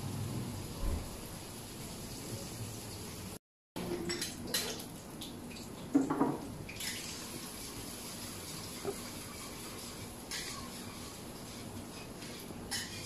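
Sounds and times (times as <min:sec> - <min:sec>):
utensils clinking in pan: 0:10.2 - 0:13.0.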